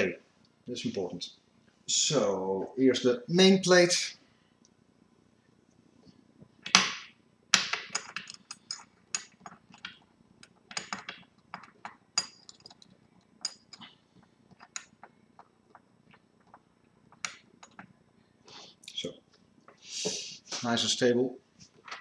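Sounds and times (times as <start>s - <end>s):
metallic clicks and clinks: 7.9s - 9.8s, 10.8s - 13.9s.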